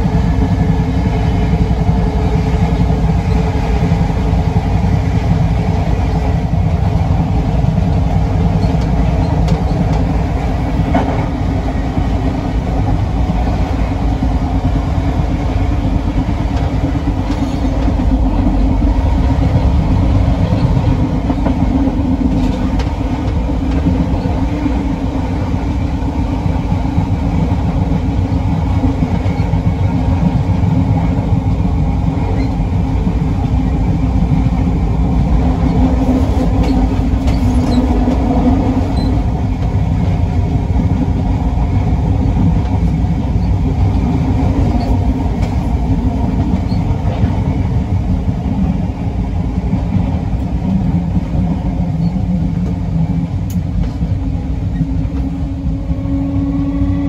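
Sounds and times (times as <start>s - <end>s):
electric train equipment humming: 0.0s - 57.0s.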